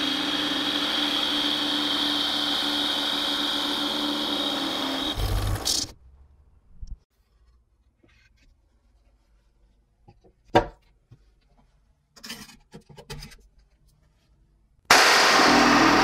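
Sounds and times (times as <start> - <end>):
electric jigsaw cutting wood: 0.0 - 5.9, 14.9 - 16.0.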